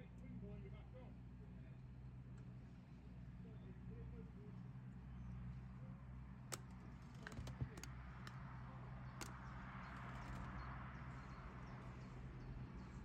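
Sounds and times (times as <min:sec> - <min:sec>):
sharp clicks: 0:06.5 - 0:08.4.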